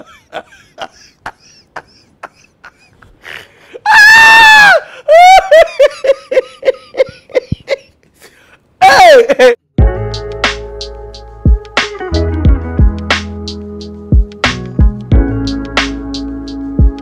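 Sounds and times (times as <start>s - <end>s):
man laughing uncontrollably: 0.0s - 8.0s, 8.8s - 9.6s.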